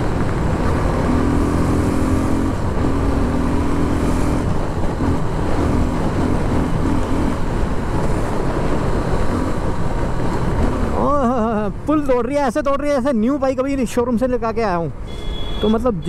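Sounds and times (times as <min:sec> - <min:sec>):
motorcycle engine running hard: 0:00.0 - 0:11.5.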